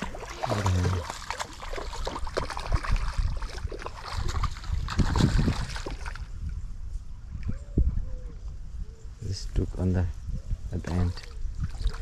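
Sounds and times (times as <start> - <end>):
water splashing and sloshing: 0.0 - 6.6, 10.8 - 12.0.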